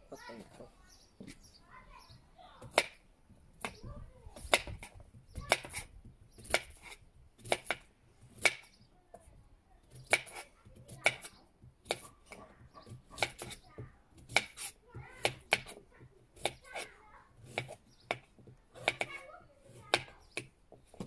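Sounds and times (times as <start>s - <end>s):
knife chopping on cutting board: 4.4s - 5.8s, 6.4s - 7.8s, 10.0s - 10.4s, 11.0s - 13.6s, 14.2s - 15.8s, 17.4s - 19.2s.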